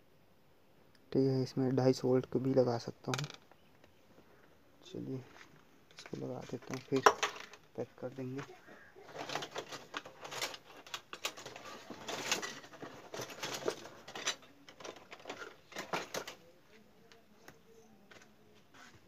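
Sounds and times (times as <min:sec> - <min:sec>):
rustling of small parts: 0:02.6 - 0:19.0
clicks and clatter of small parts: 0:03.0 - 0:03.6, 0:05.9 - 0:08.5, 0:09.1 - 0:16.4.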